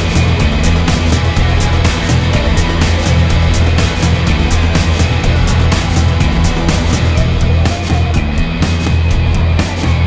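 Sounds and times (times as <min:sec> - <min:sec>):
music with heavy bass: 0:00.0 - 0:10.0.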